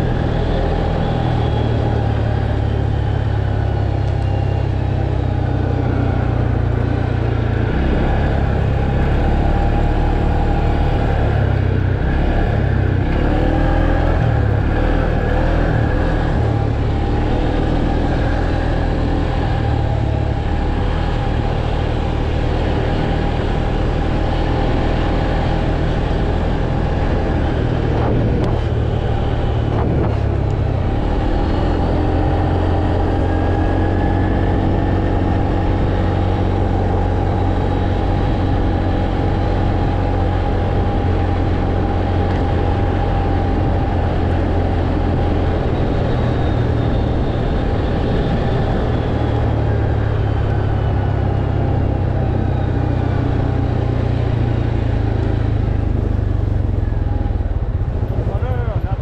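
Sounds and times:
atv engine running: 0:00.0 - 0:59.0.

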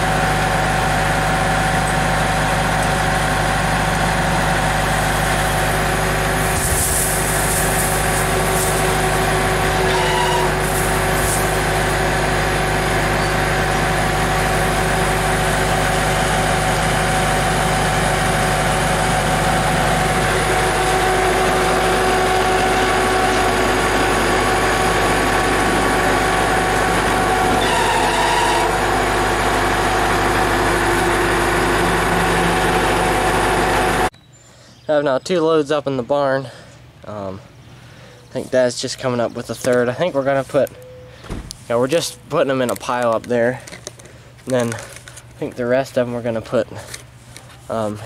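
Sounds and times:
tractor engine running: 0:00.0 - 0:34.1.

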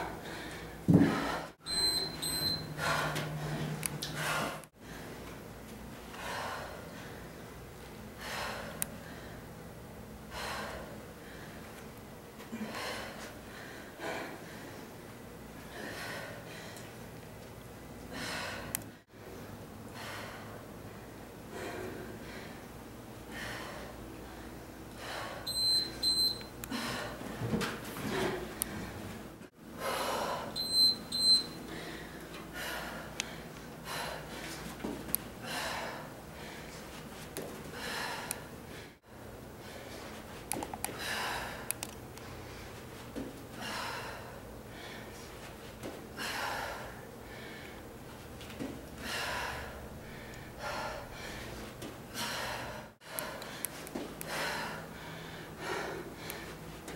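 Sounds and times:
woman breathing heavily: 0:00.0 - 0:01.7, 0:02.3 - 0:05.4, 0:06.0 - 0:17.1, 0:18.0 - 0:56.9
short high timer beeps: 0:01.6 - 0:02.7.

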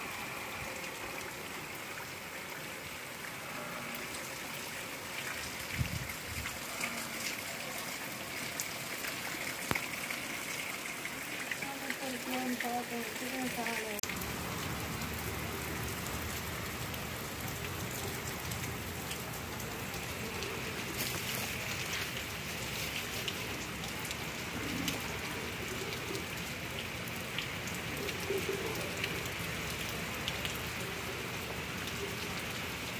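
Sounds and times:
rain on muddy ground: 0:00.0 - 0:32.9.

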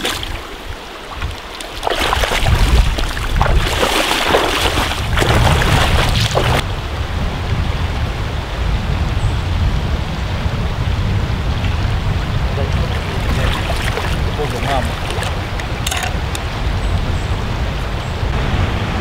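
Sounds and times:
river water rushing and splashing: 0:00.0 - 0:07.2, 0:11.3 - 0:16.6.

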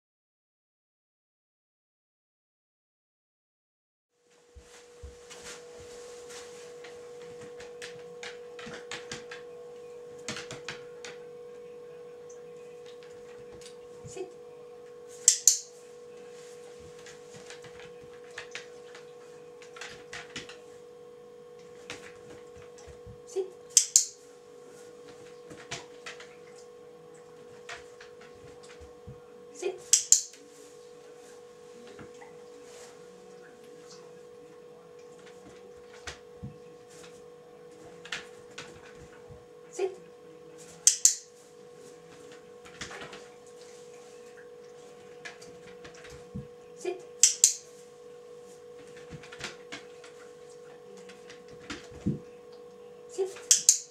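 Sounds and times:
steady high hum: 0:04.2 - 0:53.9
dog scuffling on hard floor: 0:04.4 - 0:09.5, 0:16.2 - 0:20.8
sharp clicks: 0:15.3 - 0:15.7, 0:23.8 - 0:24.1, 0:29.9 - 0:30.3, 0:40.9 - 0:41.2, 0:47.2 - 0:47.6.

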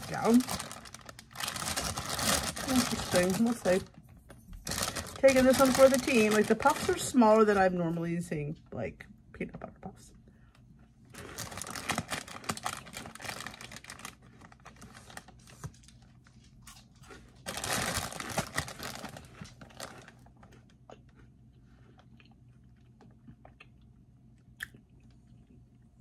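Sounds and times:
person crunching cereal: 0:00.0 - 0:03.7, 0:11.1 - 0:15.8, 0:16.6 - 0:23.6
crinkly plastic bag: 0:00.0 - 0:04.0, 0:04.6 - 0:07.8, 0:11.1 - 0:20.7.

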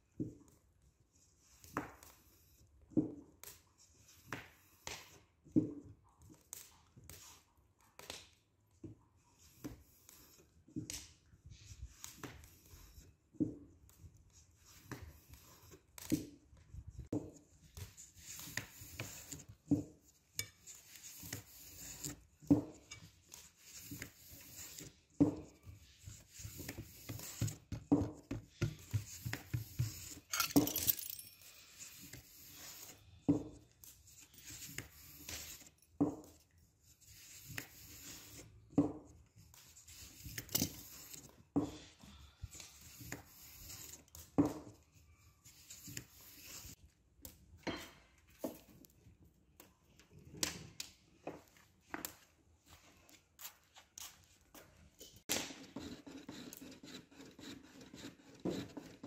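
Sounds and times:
metal spoon tapping and scraping: 0:28.6 - 0:31.3.

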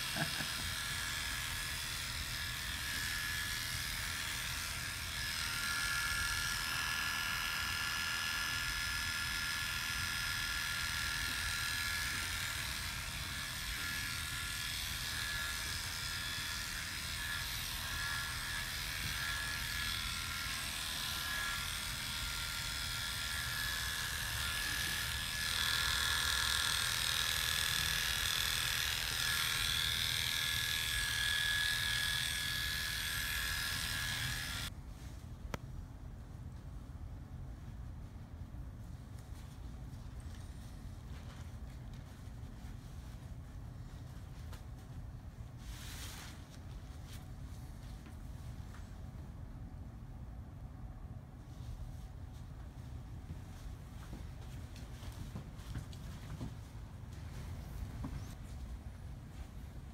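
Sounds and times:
hair clippers buzzing: 0:00.0 - 0:34.7.

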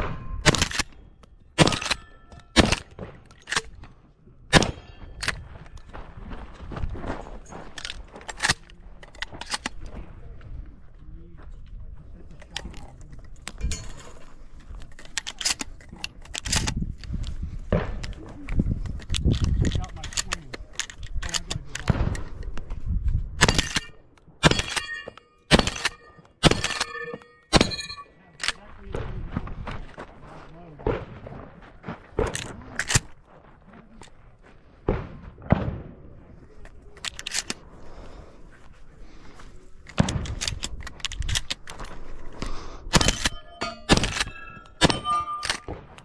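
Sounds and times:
shotgun shots: 0:00.0 - 0:00.9, 0:01.6 - 0:03.6, 0:04.5 - 0:05.0, 0:25.5 - 0:27.9, 0:34.9 - 0:36.1, 0:42.9 - 0:46.0.

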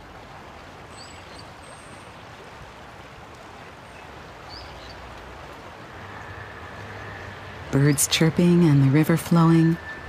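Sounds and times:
river water flowing: 0:00.0 - 0:10.0.

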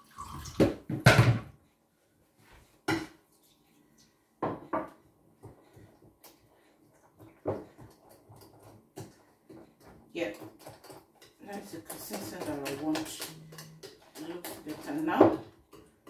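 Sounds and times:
whisk clinking against glass bowl: 0:10.6 - 0:15.9.

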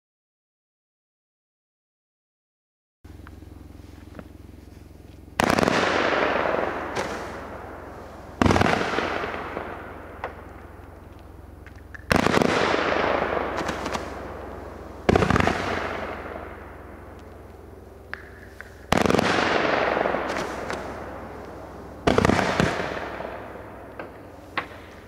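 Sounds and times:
steady low hum: 0:03.1 - 0:25.0
firework shots: 0:04.2 - 0:25.0
smaller firework pops: 0:05.4 - 0:25.0.

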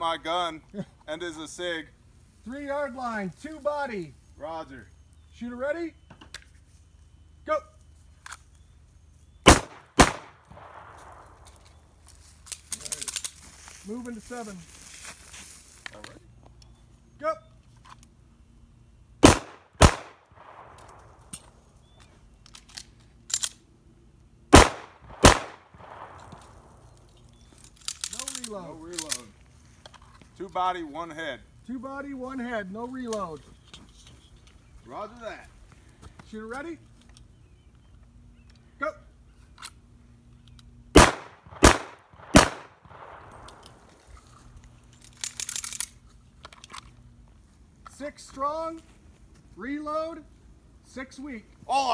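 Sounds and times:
pistol shots: 0:09.4 - 0:11.4, 0:19.2 - 0:21.3, 0:24.5 - 0:26.8, 0:41.0 - 0:43.9.

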